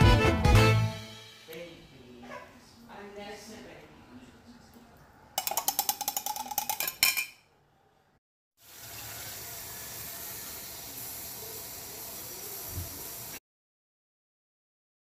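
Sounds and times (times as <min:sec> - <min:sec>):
utensil clinking against cookware: 0:05.4 - 0:07.4
food sizzling in a pan: 0:08.6 - 0:13.4.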